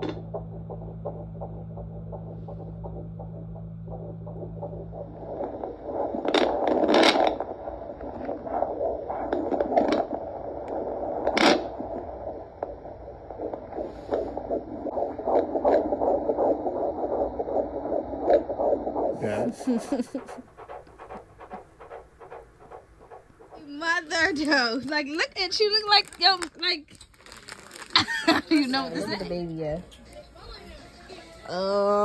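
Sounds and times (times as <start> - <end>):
fetal heartbeat pulsing whoosh: 0.0 - 26.4
steady low hum: 0.0 - 26.9.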